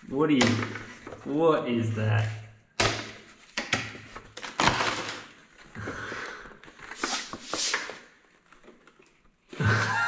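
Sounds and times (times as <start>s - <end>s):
cardboard cracking: 2.8s - 5.7s
cardboard rustling and scraping: 6.6s - 9.5s.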